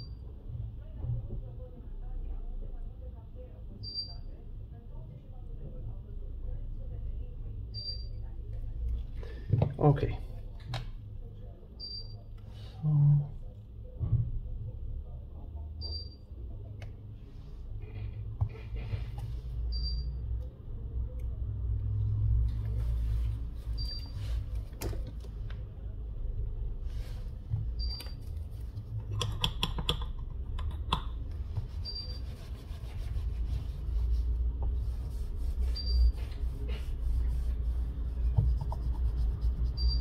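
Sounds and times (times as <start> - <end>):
hands rubbing on glass: 31.6 - 39.9.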